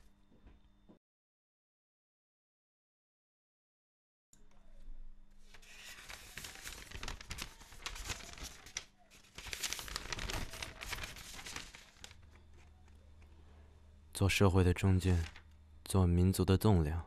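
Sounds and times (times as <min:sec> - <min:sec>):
paper rustling and crinkling: 0:05.4 - 0:13.4, 0:15.1 - 0:15.6.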